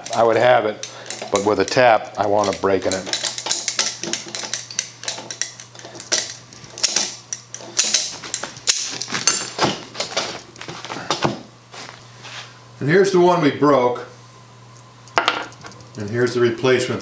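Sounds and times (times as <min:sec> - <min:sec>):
pliers scraping metal: 0:00.0 - 0:10.2.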